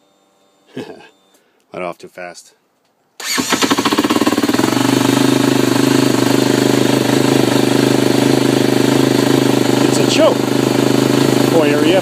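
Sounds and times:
motorcycle engine starting and idling: 0:03.2 - 0:12.0.

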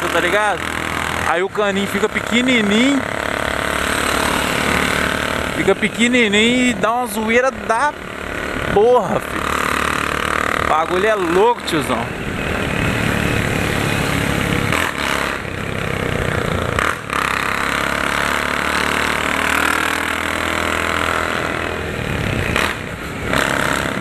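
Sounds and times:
motorcycle engine running loud: 0:00.0 - 0:24.0.

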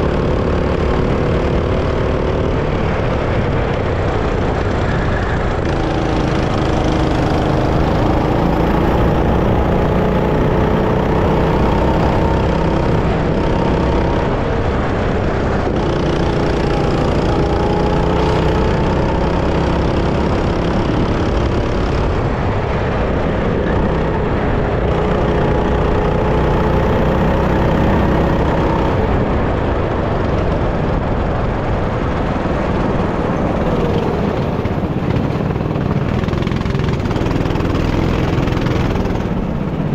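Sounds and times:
go-kart engine revving: 0:00.0 - 0:39.9
heavy low rumble: 0:00.0 - 0:39.9.

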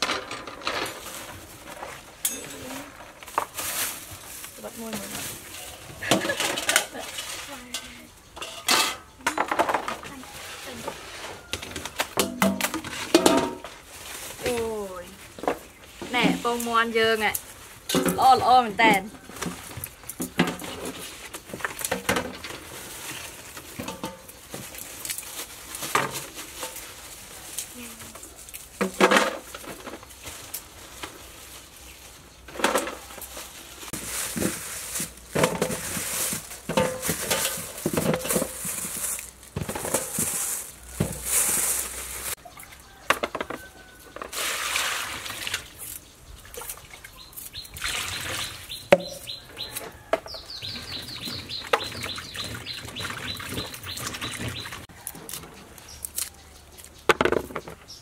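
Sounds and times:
plastic bags rustling: 0:00.0 - 0:08.1, 0:09.3 - 0:43.0
bird chirping trill: 0:45.9 - 0:54.8.

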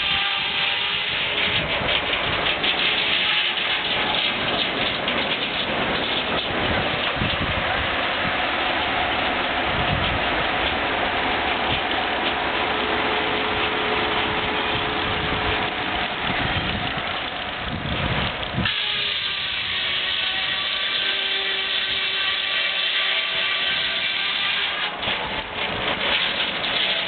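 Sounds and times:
circular saw cutting log: 0:00.0 - 0:06.5, 0:18.6 - 0:27.0.

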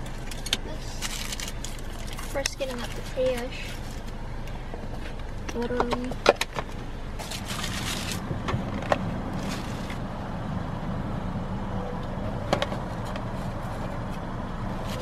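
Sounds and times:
paper rustling: 0:07.2 - 0:08.2.

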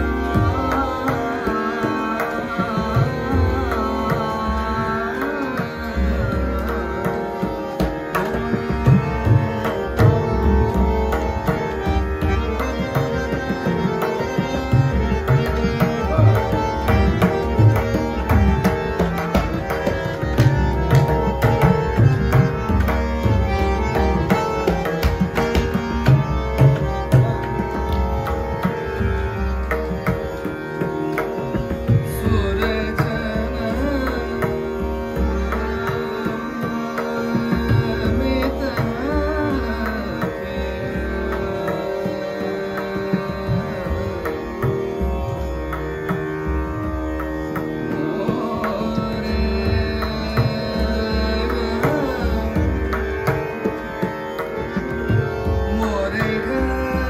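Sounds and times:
person singing: 0:00.0 - 0:23.1, 0:31.7 - 0:45.3, 0:47.8 - 0:54.3, 0:55.2 - 0:57.0
harmonium notes: 0:00.0 - 0:57.0
tabla strokes: 0:06.3 - 0:33.1.

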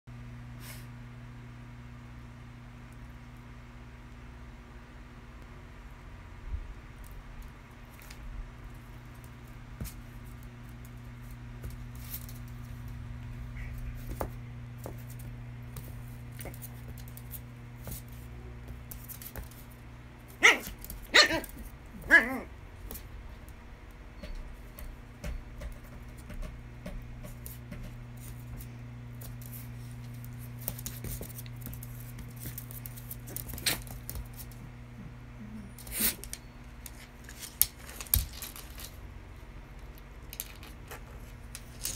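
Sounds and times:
dogs scuffling on hard floor: 0:07.9 - 0:23.5, 0:24.2 - 0:34.6
small dogs barking: 0:20.4 - 0:22.5.

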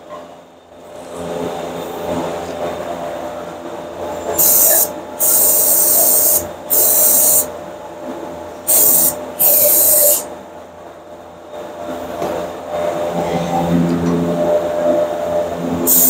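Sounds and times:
aerosol spray hissing: 0:04.4 - 0:07.5, 0:08.7 - 0:10.3.

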